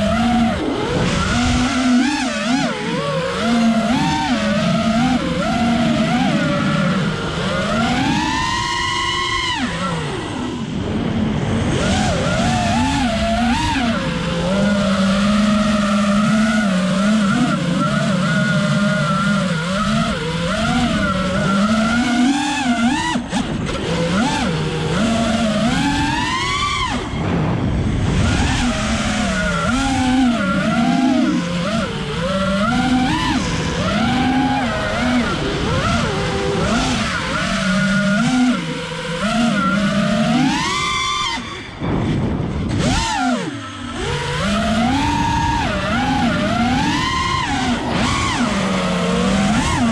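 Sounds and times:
quadcopter motors whining: 0.0 - 49.9.

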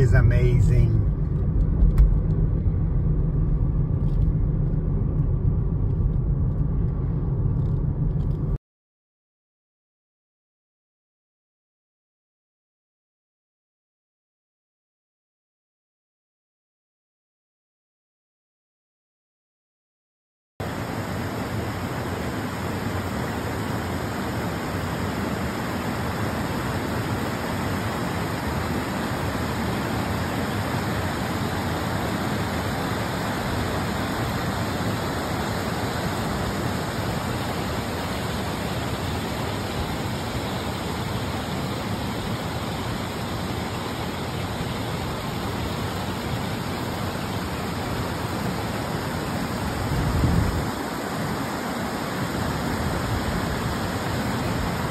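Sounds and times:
low thump: 1.0 - 6.6
river rushing over boulders: 20.6 - 54.9.

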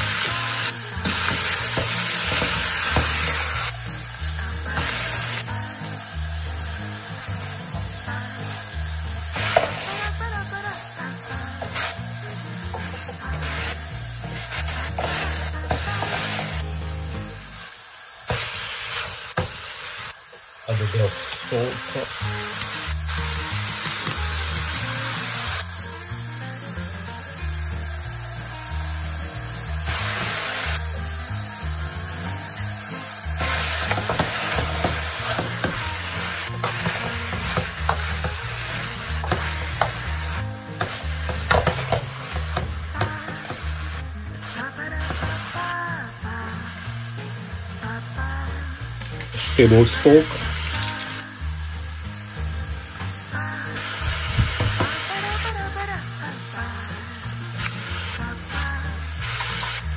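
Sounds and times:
vegetables sizzling in a pot: 0.0 - 59.9.

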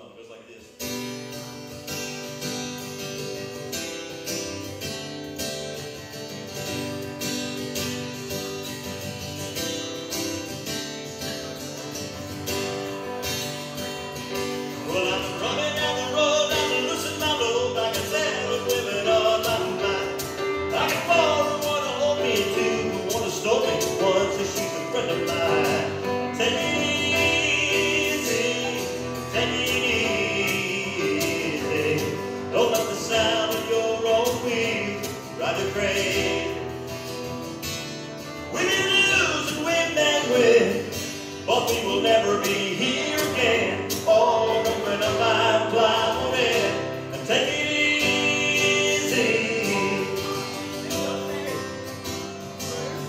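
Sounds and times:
acoustic guitar strumming: 0.1 - 53.0
electric keyboard playing: 10.7 - 42.2
man singing: 14.7 - 36.8, 38.4 - 53.0.

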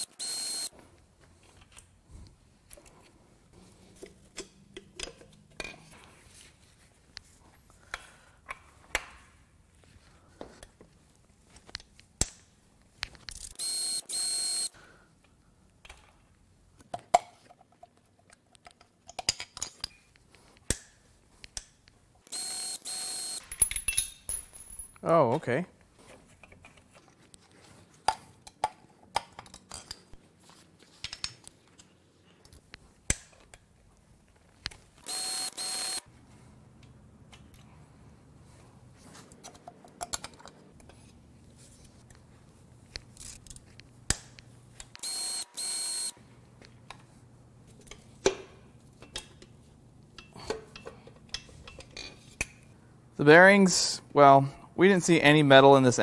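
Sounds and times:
power tool running: 35.1 - 36.0.

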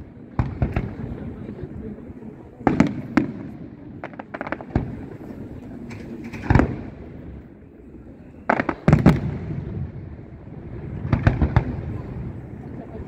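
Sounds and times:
fireworks bursting with bangs: 0.0 - 1.8, 2.5 - 7.4, 8.4 - 13.0
light fireworks pops: 0.3 - 1.3, 2.6 - 7.0, 8.5 - 9.6, 11.0 - 12.1.

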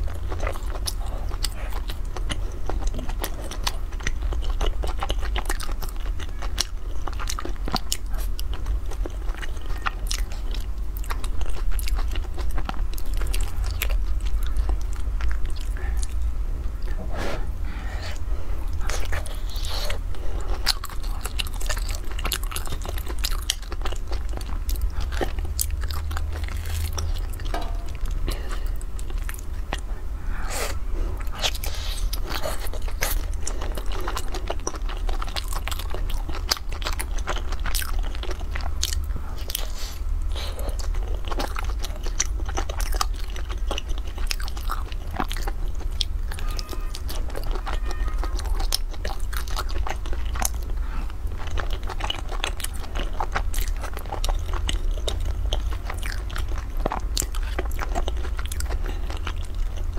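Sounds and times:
steady low rumble: 0.0 - 46.4
person chewing crunchy food: 0.0 - 59.9.

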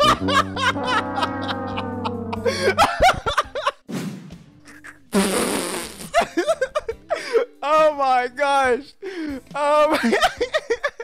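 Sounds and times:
laughter: 0.0 - 3.8, 6.0 - 7.4, 9.9 - 11.0.

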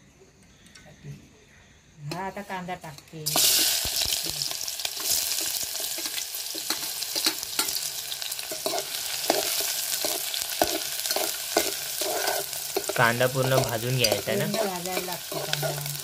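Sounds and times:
onion sizzling in hot oil: 3.2 - 16.0
metal spoon scraping a pan: 4.9 - 16.0.

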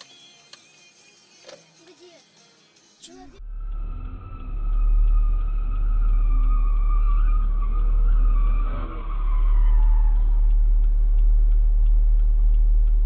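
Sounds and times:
car engine rumble: 3.4 - 13.0
high-pitched squeal sliding down: 3.5 - 10.7.

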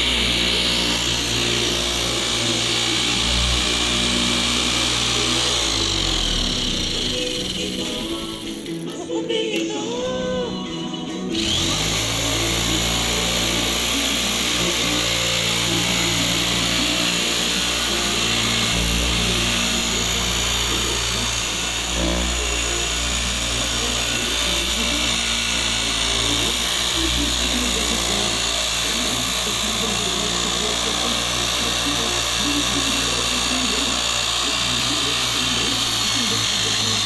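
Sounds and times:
low motor hum: 0.0 - 8.8
sheet-metal cutting machine hissing: 0.0 - 37.0.

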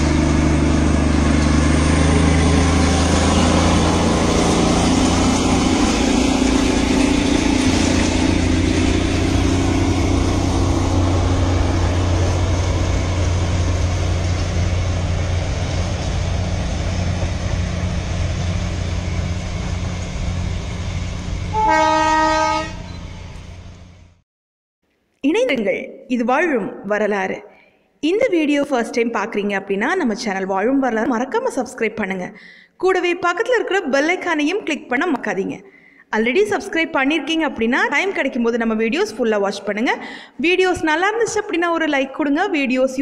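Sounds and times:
train engine rumble: 0.0 - 24.2
train horn blast: 21.5 - 23.2.

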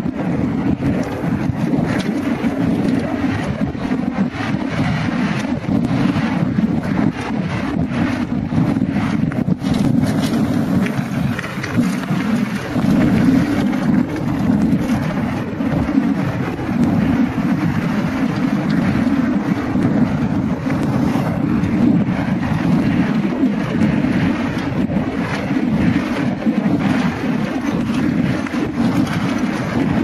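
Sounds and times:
bike tyres rumbling on dirt trail: 0.0 - 30.0
wind buffeting microphone: 0.0 - 30.0.

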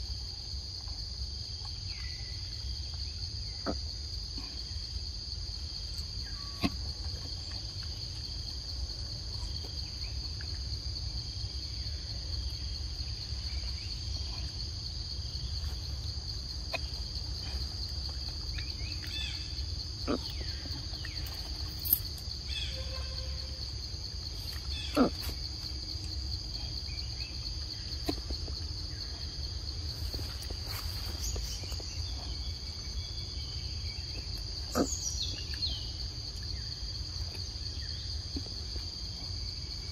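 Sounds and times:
high-pitched insect chorus: 0.0 - 39.9.

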